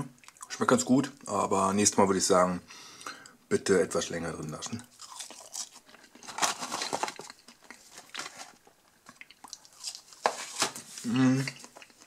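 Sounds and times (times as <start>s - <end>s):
rustling and crinkling handling: 5.0s - 12.0s.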